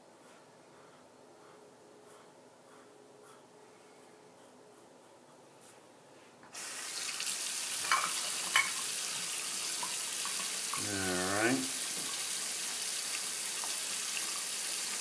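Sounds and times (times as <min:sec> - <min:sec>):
tap water running into basin: 0:06.6 - 0:11.0, 0:11.6 - 0:15.0.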